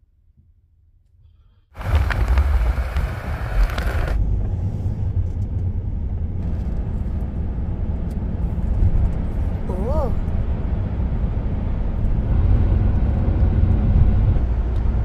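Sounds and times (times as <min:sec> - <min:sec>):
engine and road rumble: 0:01.3 - 0:15.0.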